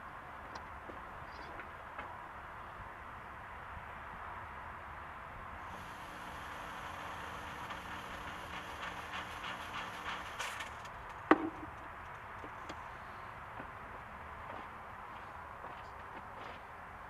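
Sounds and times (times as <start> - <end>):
fog machine pump buzzing: 5.6 - 11.2.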